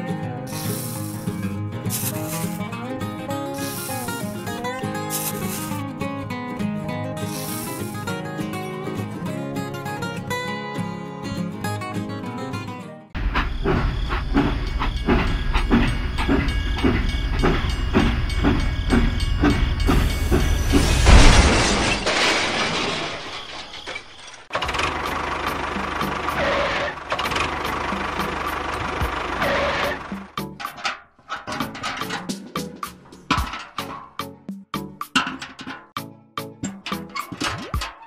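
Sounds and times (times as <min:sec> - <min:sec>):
steam hiss: 0:00.5 - 0:02.6, 0:03.6 - 0:04.4, 0:05.1 - 0:05.7, 0:07.2 - 0:08.0
toy train chuffing: 0:00.5 - 0:02.6, 0:03.6 - 0:05.8, 0:07.2 - 0:08.1, 0:13.2 - 0:20.7, 0:24.6 - 0:30.8
toy train running noise: 0:00.5 - 0:02.6, 0:03.5 - 0:05.8, 0:07.2 - 0:08.1, 0:24.6 - 0:30.2.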